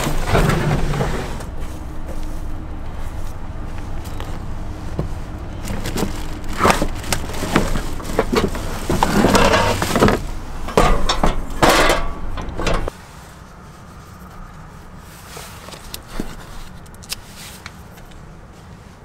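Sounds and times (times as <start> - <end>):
steady low hum: 0.0 - 15.3
plastic bags rustling: 3.4 - 10.6
items clattering against wood: 5.6 - 12.9.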